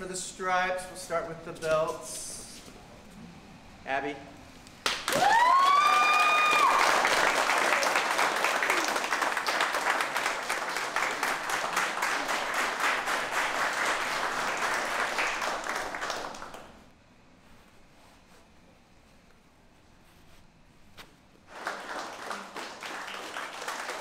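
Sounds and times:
people clapping: 4.8 - 16.9, 21.5 - 24.0
whooping cheer: 5.1 - 9.0.

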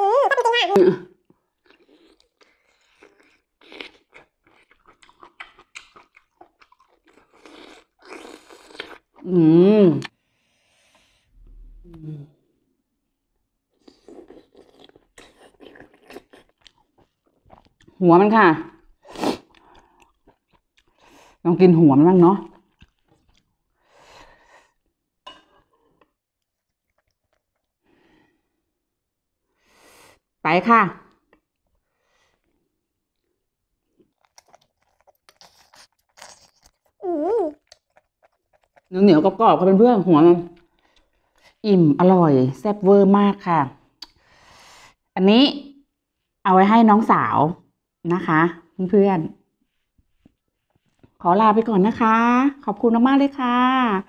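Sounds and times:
chewing with wet clicks: 1.2 - 9.2, 14.0 - 18.0, 19.4 - 21.2, 22.5 - 23.7, 26.0 - 27.9, 33.9 - 39.0, 40.5 - 41.6, 44.0 - 44.2
soft breaths: 10.2 - 12.4.

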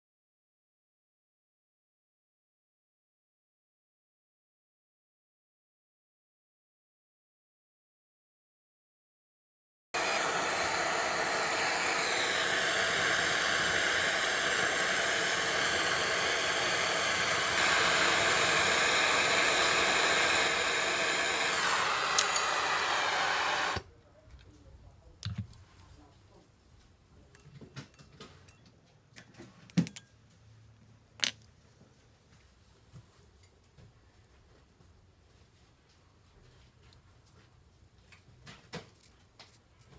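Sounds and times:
gas torch hissing: 10.0 - 23.9.

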